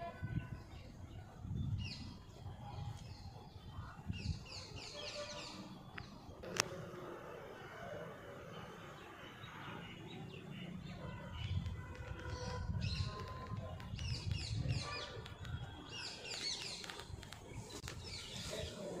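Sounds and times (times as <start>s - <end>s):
small birds chirping: 8.7s - 19.0s.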